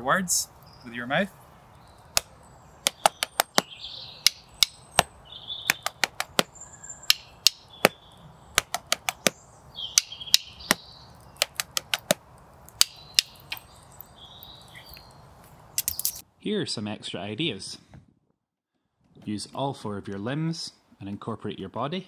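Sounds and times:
wooden sticks knocking rhythm: 2.1s - 5.1s, 5.7s - 6.5s, 7.1s - 8.0s, 8.6s - 10.8s, 11.4s - 13.6s.

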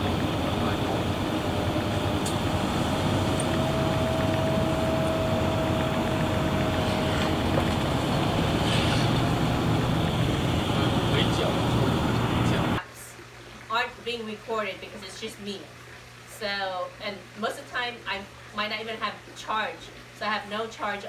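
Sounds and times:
vehicle engine and road noise: 0.0s - 12.8s
faint steady whine: 0.0s - 21.0s.

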